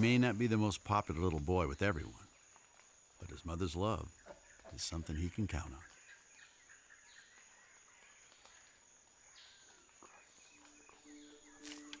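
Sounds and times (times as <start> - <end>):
high-pitched insect drone: 8.4 - 12.0.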